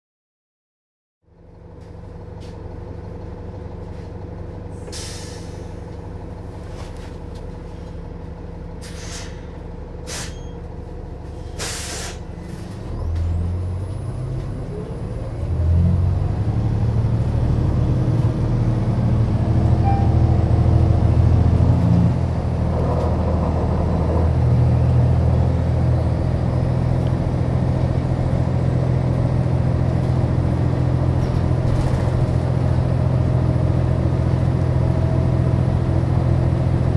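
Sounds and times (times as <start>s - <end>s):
diesel bus engine idling: 1.3s - 36.9s
air brake hisses: 4.8s - 5.8s, 8.8s - 10.5s, 11.4s - 12.3s.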